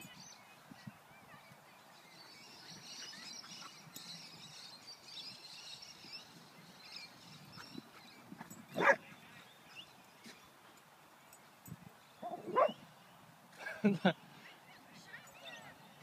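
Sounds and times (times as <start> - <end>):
dog barking: 8.8 - 9.0, 12.3 - 12.8.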